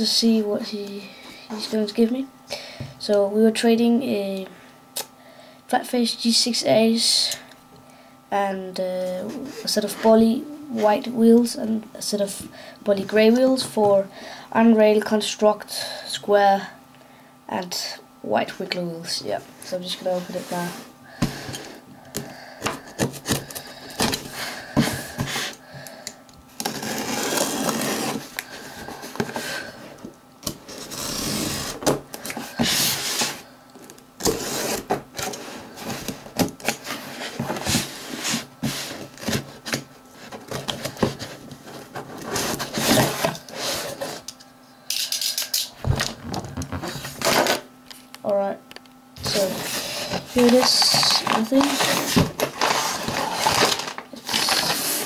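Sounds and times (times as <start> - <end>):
cardboard scraping and tearing: 26.6 - 28.3, 30.6 - 33.4, 34.2 - 44.2, 49.2 - 55.0.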